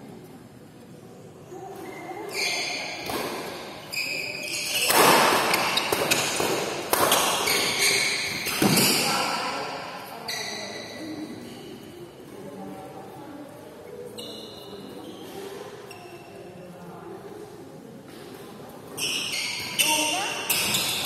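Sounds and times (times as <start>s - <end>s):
shoes squeaking on court: 1.8s - 9.3s, 10.2s - 11.8s, 14.0s - 16.4s, 18.9s - 21.0s
rackets striking shuttlecock: 4.8s - 8.8s.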